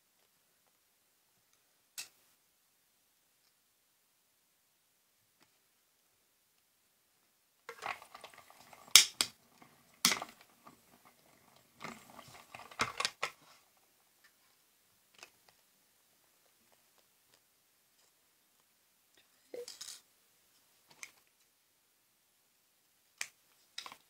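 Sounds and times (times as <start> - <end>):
sharp plastic clacks: 7.7 - 9.4, 10.0 - 10.8
plastic plates rustling: 7.7 - 13.6.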